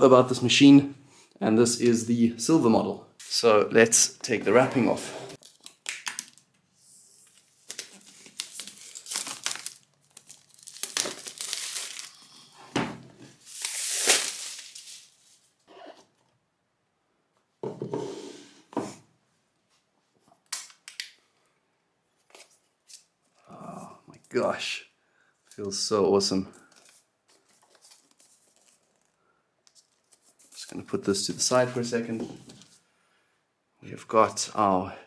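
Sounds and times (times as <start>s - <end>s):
plastic wrap tearing and crinkling: 5.4s - 6.5s, 7.2s - 12.6s, 13.4s - 15.4s.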